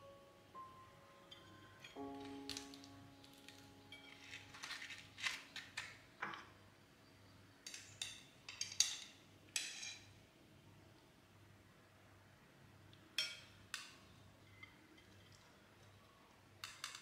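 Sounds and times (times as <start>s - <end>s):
kitchenware scraping and clinking: 1.3s - 6.6s, 7.7s - 10.1s, 13.2s - 17.0s.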